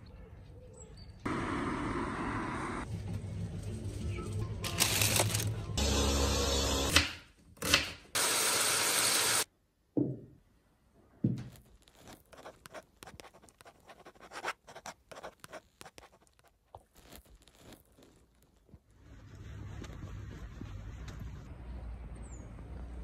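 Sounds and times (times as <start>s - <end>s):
dry scratchy scribbling strokes: 11.8s - 21.4s.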